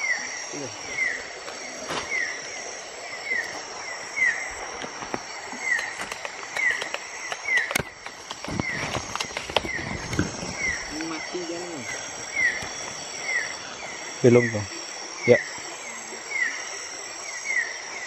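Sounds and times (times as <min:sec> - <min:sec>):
leaves rustling: 0:00.0 - 0:15.9
high insect drone: 0:00.0 - 0:18.0
feet crunching in undergrowth: 0:04.6 - 0:13.1.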